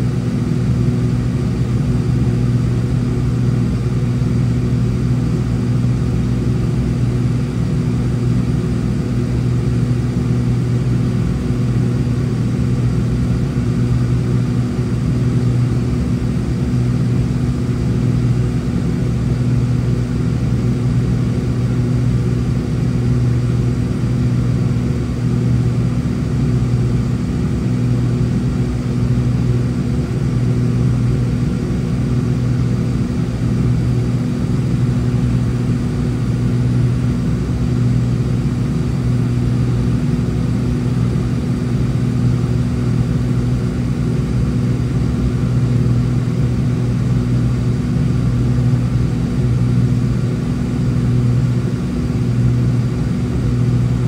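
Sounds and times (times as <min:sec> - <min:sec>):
aircraft cabin engine drone: 0:00.0 - 0:54.0.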